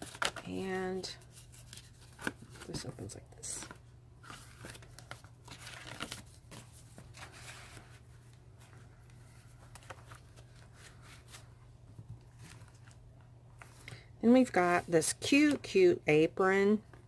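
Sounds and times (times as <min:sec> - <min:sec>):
cardstock pages rustling: 0:01.2 - 0:14.0.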